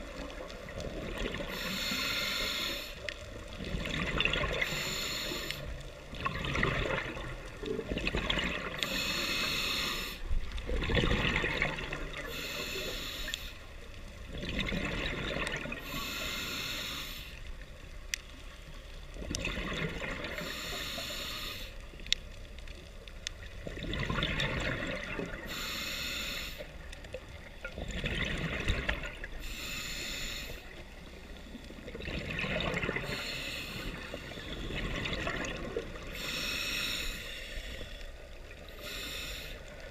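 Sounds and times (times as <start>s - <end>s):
hissing regulator inhale: 1.3s - 3.2s, 4.6s - 6.0s, 8.8s - 10.3s, 12.2s - 13.8s, 15.8s - 17.5s, 20.3s - 21.9s, 25.4s - 26.9s, 29.4s - 31.4s, 33.0s - 34.6s, 36.0s - 39.9s
exhaled bubbles rushing: 3.6s - 4.7s, 6.1s - 8.8s, 10.6s - 12.3s, 14.3s - 15.8s, 19.2s - 20.4s, 23.6s - 25.5s, 27.5s - 29.4s, 31.8s - 33.1s, 34.3s - 36.1s.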